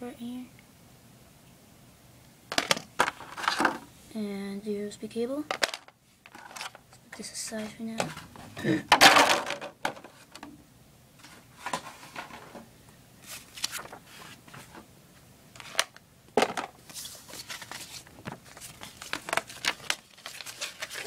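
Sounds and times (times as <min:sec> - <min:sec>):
paper packaging rustling: 0:02.5 - 0:03.8, 0:05.6 - 0:06.8, 0:13.2 - 0:14.8, 0:15.6 - 0:21.0.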